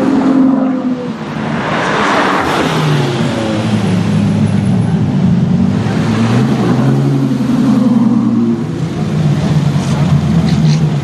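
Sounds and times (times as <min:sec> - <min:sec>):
car passing by: 0:00.0 - 0:04.2
car engine at low revs: 0:02.9 - 0:11.0.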